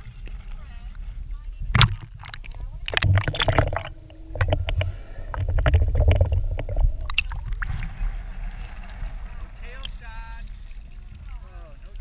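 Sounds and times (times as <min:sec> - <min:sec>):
muffled underwater rumble: 0:00.0 - 0:12.0
clicks and crackles: 0:01.7 - 0:07.7.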